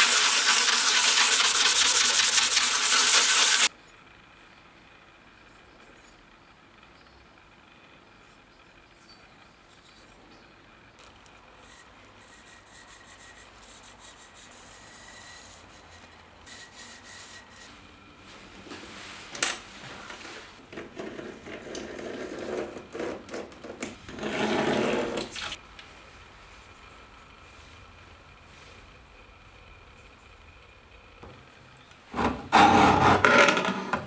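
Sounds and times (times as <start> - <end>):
abrasive pad sanding steel: 0.0 - 3.7, 11.6 - 17.8.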